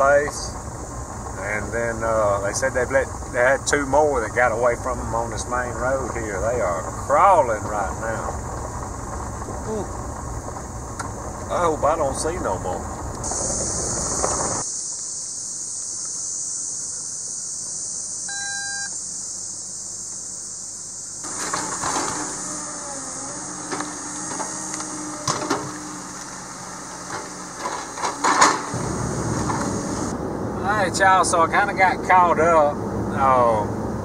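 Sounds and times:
log loader engine hum: 0:00.0 - 0:14.7, 0:17.7 - 0:34.0
high hiss: 0:11.5 - 0:32.3
short beep: 0:18.3 - 0:19.0.

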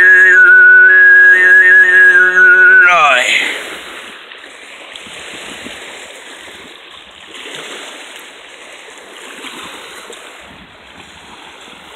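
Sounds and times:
small waves lapping on rocks: 0:03.3 - 0:11.9.

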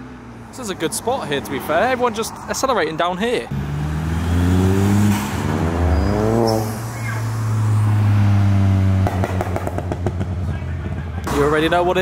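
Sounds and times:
cars accelerating past: 0:03.5 - 0:12.0
exhaust pops: 0:09.0 - 0:11.7.

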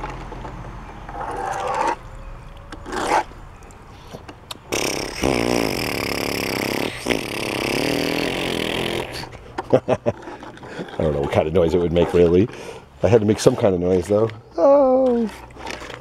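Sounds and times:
toy boat scraping: 0:01.0 - 0:13.9, 0:15.1 - 0:16.0.

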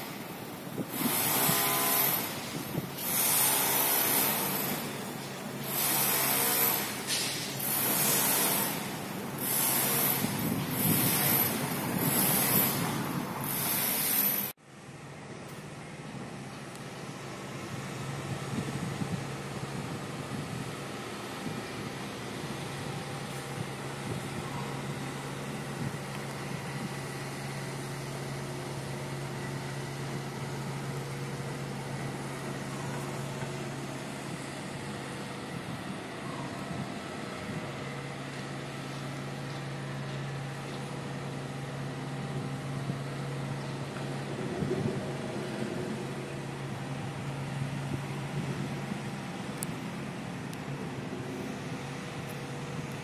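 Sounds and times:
machinery drone: 0:00.0 - 0:14.6, 0:16.0 - 0:53.0
construction site noise: 0:00.0 - 0:53.0
traffic noise: 0:00.0 - 0:53.0
steady hum: 0:44.1 - 0:53.0.

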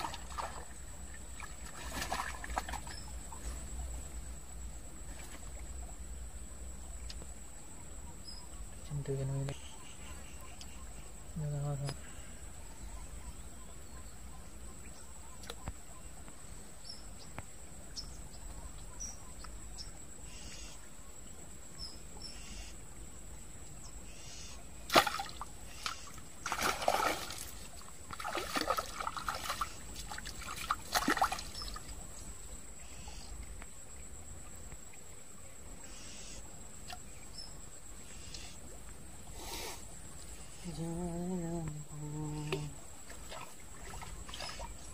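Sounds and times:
water splashing in stream: 0:00.0 - 0:03.4, 0:24.8 - 0:32.2, 0:42.4 - 0:44.9.

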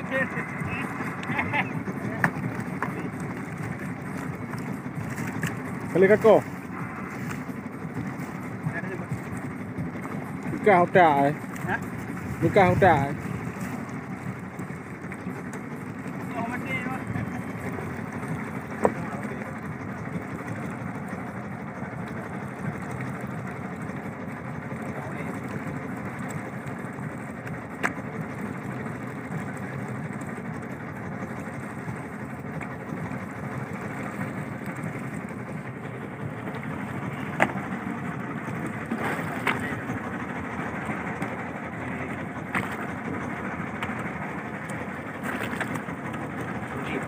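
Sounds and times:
boat engine rumble: 0:00.0 - 0:47.0
knocks on a boat: 0:18.8 - 0:19.0, 0:37.3 - 0:37.6.

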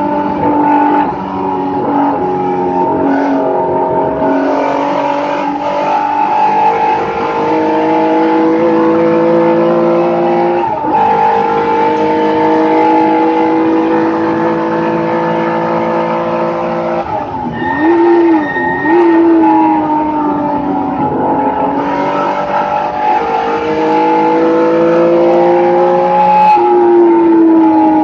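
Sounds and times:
race car engine accelerating: 0:00.0 - 0:28.0.

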